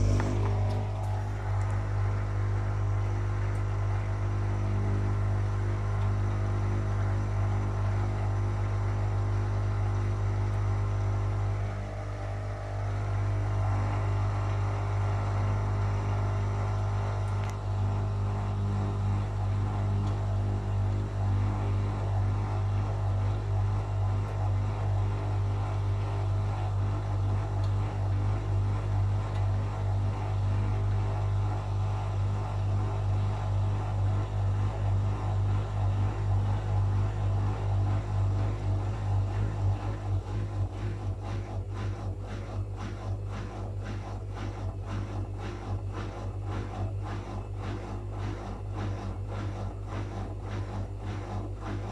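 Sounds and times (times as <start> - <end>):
washing machine running: 0.0 - 51.9
water and laundry sloshing: 32.9 - 51.9.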